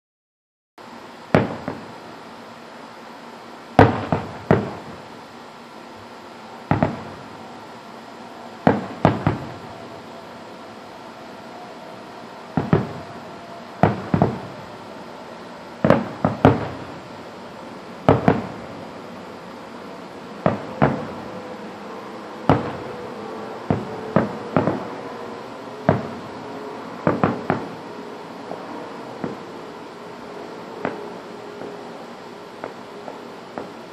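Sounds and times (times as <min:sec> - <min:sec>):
fireworks bangs with echo: 0:01.3 - 0:02.0, 0:03.7 - 0:05.2, 0:06.6 - 0:10.1, 0:12.4 - 0:17.2, 0:18.0 - 0:18.8, 0:20.3 - 0:21.7, 0:22.4 - 0:26.4, 0:27.0 - 0:29.6, 0:30.8 - 0:31.8, 0:32.6 - 0:33.9.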